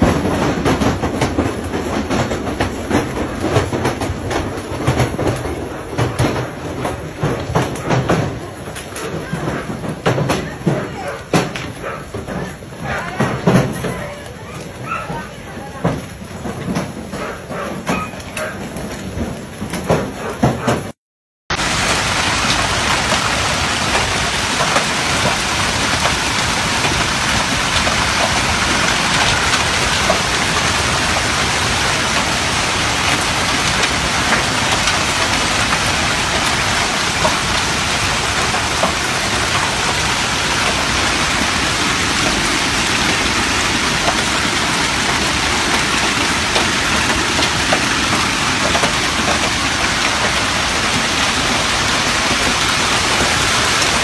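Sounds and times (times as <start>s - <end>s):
heavy rain hissing: 21.5s - 54.0s
hailstones ticking: 21.6s - 54.0s.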